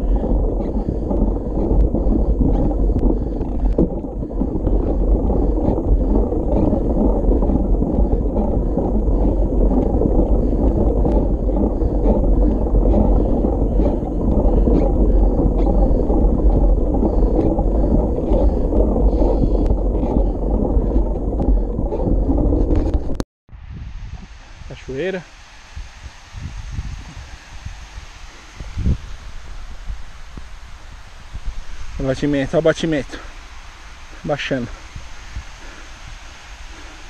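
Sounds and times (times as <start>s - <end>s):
bike clicks and ticks: 0.0s - 23.2s
bike tyres rolling on dirt: 0.0s - 23.2s, 24.7s - 37.0s
wind rumble on microphone: 0.0s - 37.0s.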